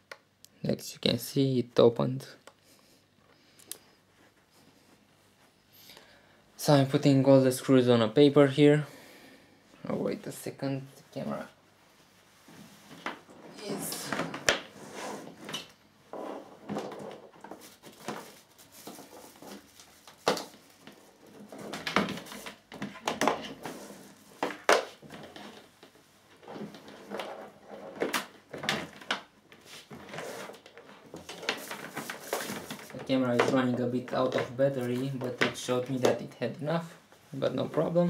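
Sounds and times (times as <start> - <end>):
rustling: 9.9 - 38.0.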